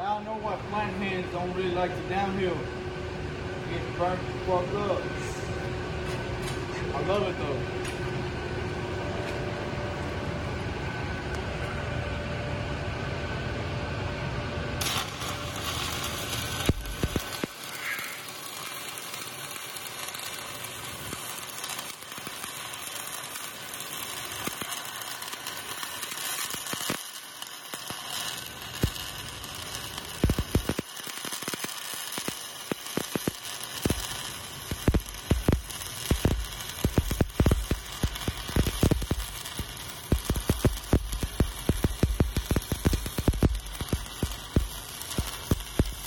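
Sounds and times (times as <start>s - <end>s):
welding arc crackling hiss: 14.8s - 46.0s
welding arc pops and cracks: 14.8s - 46.0s.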